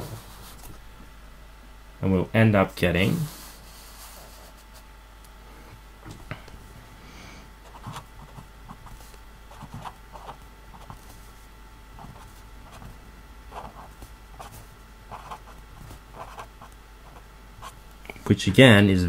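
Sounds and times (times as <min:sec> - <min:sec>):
faint steady hum: 0:00.0 - 0:19.0
marker writing on paper: 0:07.7 - 0:11.0, 0:13.6 - 0:15.6, 0:16.2 - 0:17.8.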